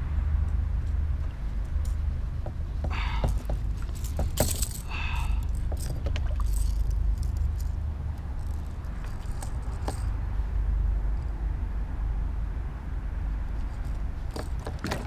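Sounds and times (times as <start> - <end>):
gear clicking and rattling: 1.8 - 10.2, 13.6 - 15.0.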